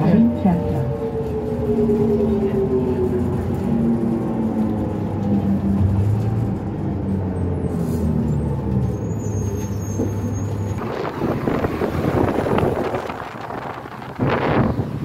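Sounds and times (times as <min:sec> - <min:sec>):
bus diesel engine humming: 0:00.0 - 0:15.0
loud rushing noise: 0:10.8 - 0:15.0.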